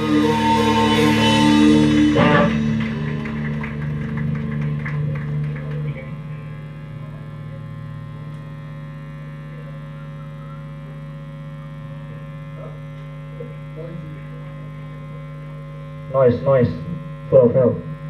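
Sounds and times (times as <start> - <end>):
rock band chord ringing: 0.0 - 9.8
electrical hum of amplifiers: 0.0 - 18.0.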